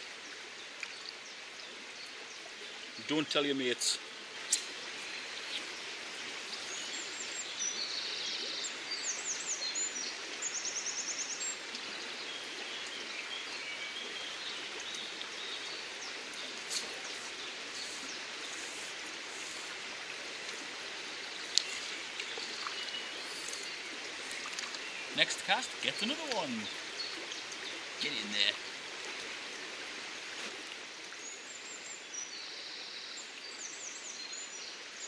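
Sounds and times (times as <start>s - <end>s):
river water flowing: 0.0s - 35.0s
songbird singing: 4.4s - 19.7s, 20.4s - 28.7s, 31.2s - 35.0s.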